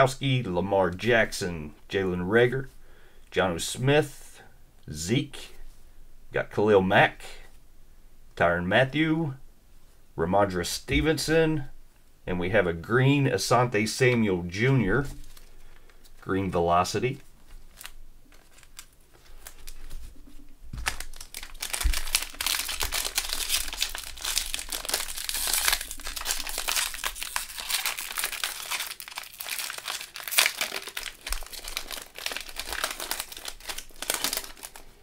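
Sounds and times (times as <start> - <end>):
plastic wrapper crinkling: 15.0 - 16.3, 17.1 - 35.0.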